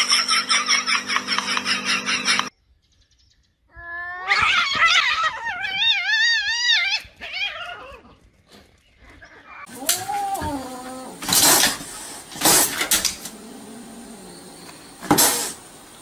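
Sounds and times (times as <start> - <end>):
cat yowling: 3.8 - 8.1, 9.6 - 11.4.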